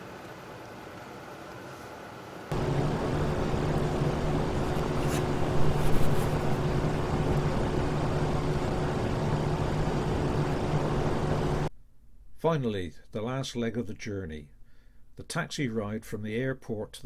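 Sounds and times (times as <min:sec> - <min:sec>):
low even hum: 0:00.0 - 0:16.2
vehicle running noise: 0:02.5 - 0:11.7.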